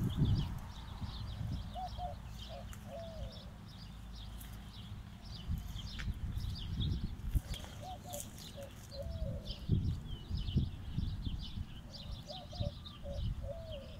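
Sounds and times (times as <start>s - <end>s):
small birds chirping: 0.0s - 13.9s
dove cooing: 1.5s - 3.6s, 7.5s - 9.8s, 11.9s - 13.9s.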